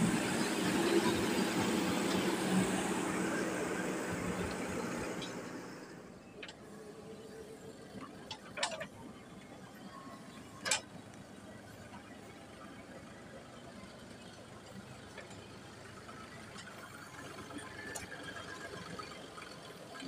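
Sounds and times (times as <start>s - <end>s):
diesel engine running: 0.0s - 20.0s.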